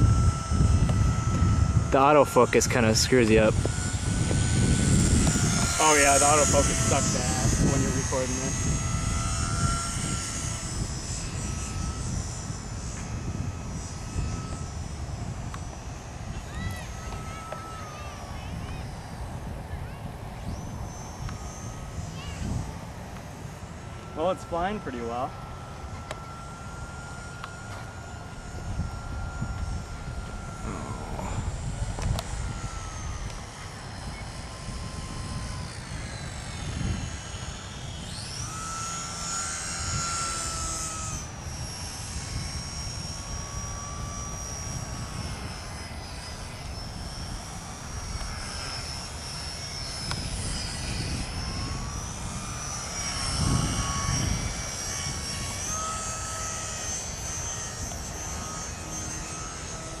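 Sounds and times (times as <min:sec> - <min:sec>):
model airplane motor whining: 0:00.0 - 1:00.0.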